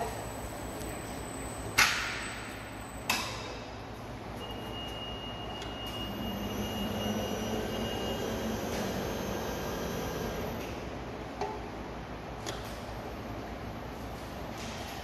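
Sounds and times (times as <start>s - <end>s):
low machine hum: 0.0s - 15.0s
servo drives high whine: 5.8s - 10.7s.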